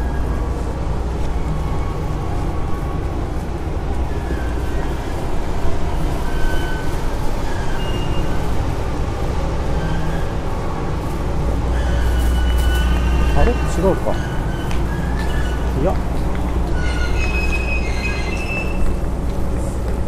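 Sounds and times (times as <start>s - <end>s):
bicycle tyres rolling: 0.0s - 20.0s.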